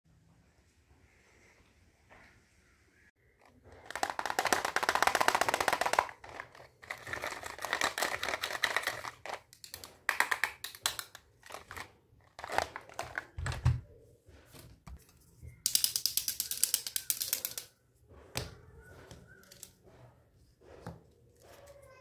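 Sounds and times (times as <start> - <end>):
plastic toys clicking and rattling: 3.4 - 13.6, 15.6 - 17.7, 19.3 - 19.8.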